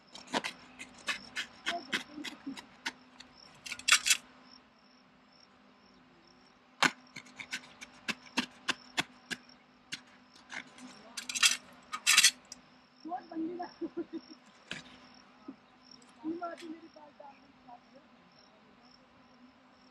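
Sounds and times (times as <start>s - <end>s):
knife cutting fabric: 0.1s - 3.0s, 6.8s - 8.8s.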